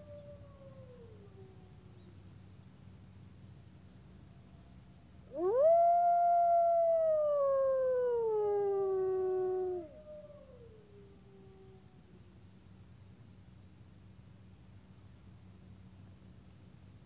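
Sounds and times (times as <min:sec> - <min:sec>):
wolves howling: 0:05.3 - 0:11.8.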